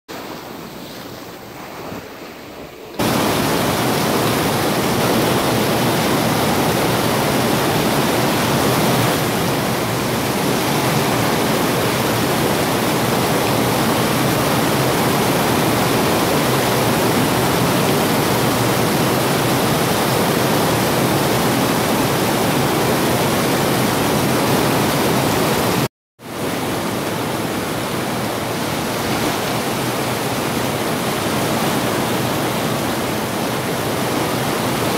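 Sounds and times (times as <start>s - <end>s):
small waves washing up sand: 0.1s - 34.9s
heavy rain pouring: 3.0s - 34.9s.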